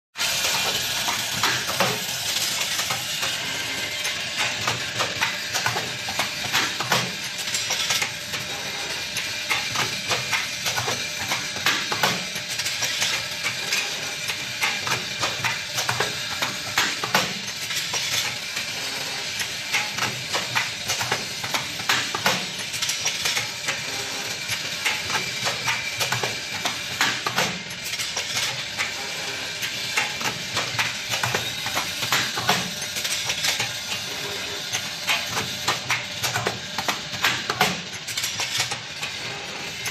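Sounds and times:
machine hissing: 0.2s - 38.2s
machine clicks and clatter: 0.2s - 39.9s.

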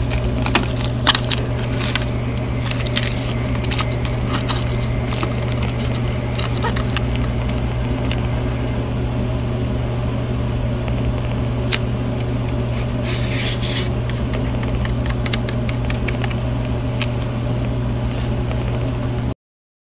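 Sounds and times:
plastic crinkle: 0.0s - 8.3s
low mechanical hum: 0.0s - 19.4s.

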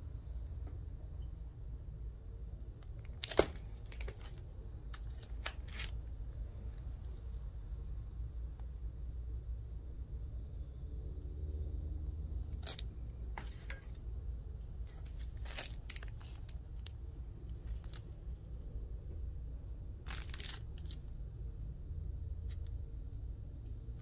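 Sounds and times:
plastic sleeves crinkling: 2.8s - 7.3s, 12.5s - 14.0s, 14.8s - 18.4s, 20.0s - 21.1s.

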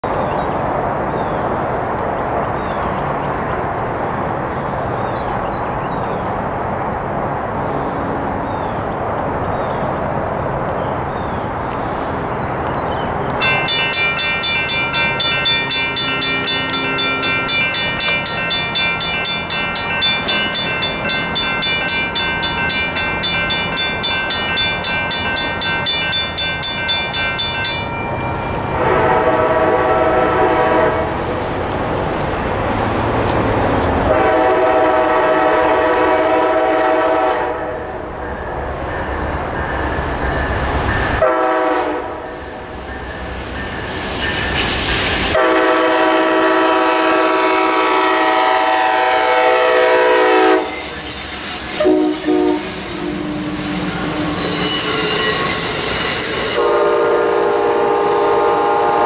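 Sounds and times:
railroad crossing bells ringing: 13.0s - 30.9s, 34.1s - 59.0s
train horn blasts: 28.7s - 31.2s, 34.1s - 37.9s, 41.2s - 42.3s, 45.3s - 59.0s.

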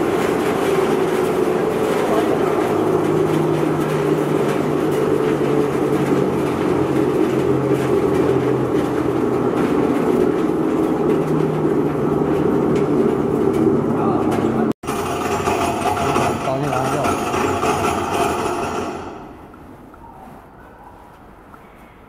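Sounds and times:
sawdust crusher machine din: 0.0s - 19.5s.

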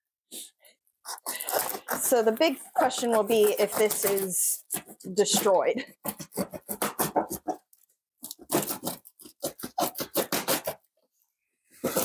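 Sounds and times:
box cutter slicing cardboard: 1.1s - 7.6s, 8.2s - 10.9s, 11.8s - 12.0s.

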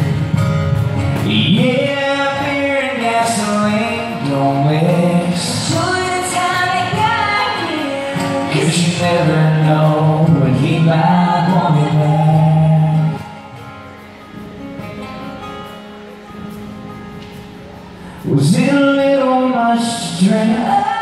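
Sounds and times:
acoustic guitar: 0.0s - 21.0s
man and woman singing in harmony: 1.3s - 13.4s, 18.3s - 21.0s.

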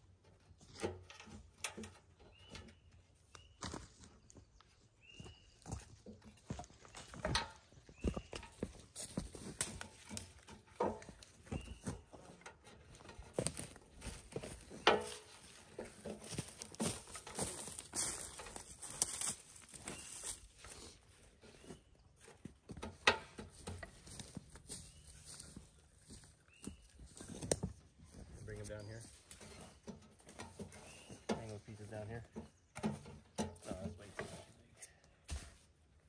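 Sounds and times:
footsteps: 3.6s - 32.1s.

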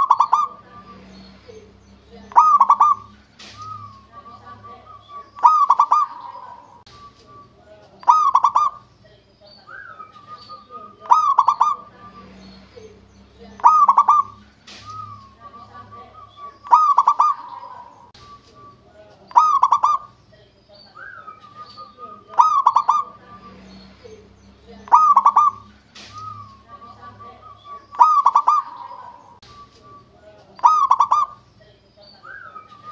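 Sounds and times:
dove cooing: 0.0s - 1.0s, 2.3s - 8.9s, 9.7s - 12.3s, 13.6s - 20.2s, 21.0s - 23.6s, 24.8s - 30.0s, 30.6s - 31.4s.

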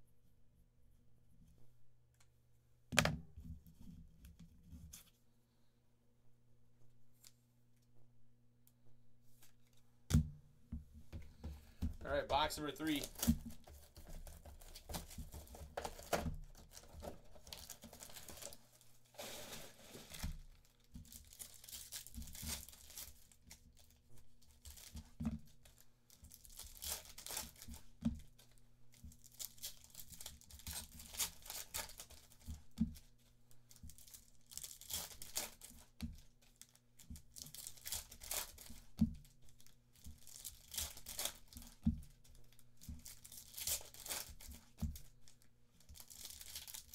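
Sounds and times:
foil wrappers tearing and crinkling: 12.3s - 32.5s, 33.7s - 46.9s.

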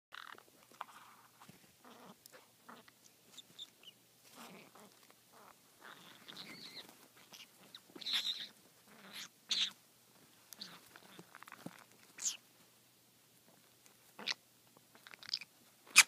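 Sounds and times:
parrots chirping: 2.7s - 9.8s, 12.2s - 12.4s, 14.2s - 16.0s.

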